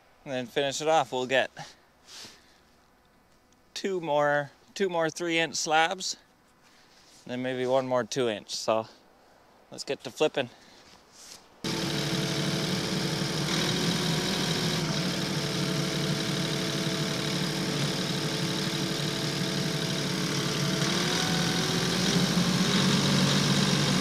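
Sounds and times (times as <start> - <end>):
tractor engine idling: 11.6 - 24.0.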